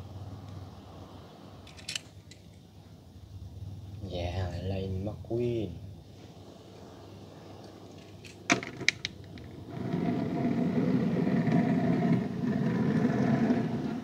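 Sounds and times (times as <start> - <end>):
toy car wheels rolling: 8.0 - 14.0.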